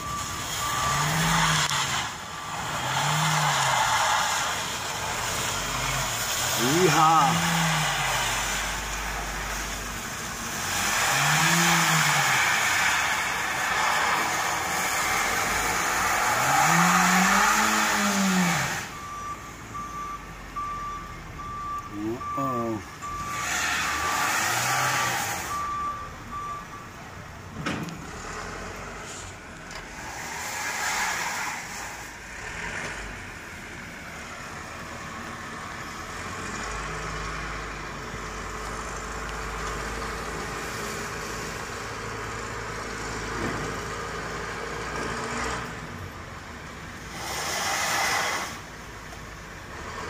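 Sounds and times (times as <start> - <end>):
reversing beeper: 0.0 - 3.0, 16.7 - 24.2, 24.9 - 27.0
wheels spinning on ice: 0.7 - 9.8, 10.5 - 18.9, 29.0 - 32.9, 47.1 - 48.7.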